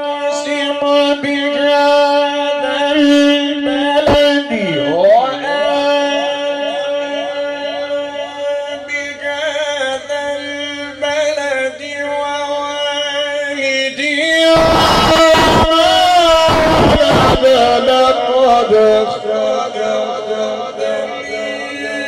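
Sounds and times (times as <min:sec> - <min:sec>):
man reciting through loudspeaker: 0:00.0 - 0:22.0
loud rough noise bursts: 0:14.3 - 0:21.0.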